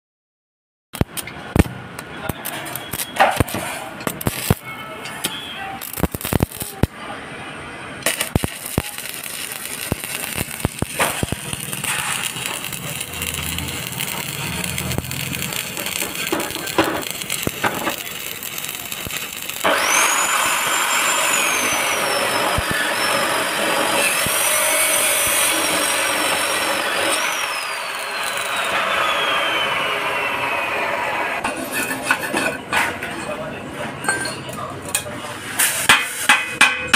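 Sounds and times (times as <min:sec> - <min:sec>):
welding arc crackling and sizzling: 0:01.0 - 0:07.0, 0:08.0 - 0:31.4
thin high whistling tone: 0:04.6 - 0:06.0, 0:19.9 - 0:23.4, 0:27.1 - 0:30.6.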